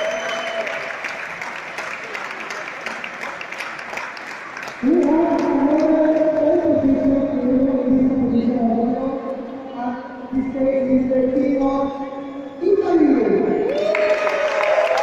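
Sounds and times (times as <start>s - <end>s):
group hand clapping: 0.0s - 6.6s, 13.7s - 15.0s.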